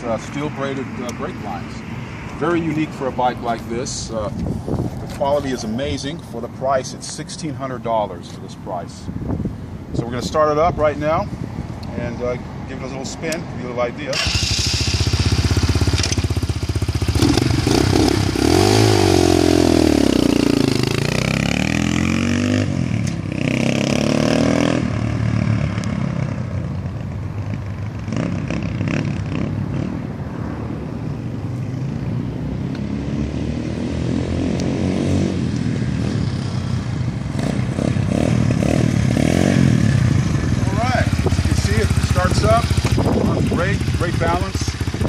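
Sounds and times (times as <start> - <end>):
dirt bike engine revving: 14.1 - 25.0, 37.4 - 45.0.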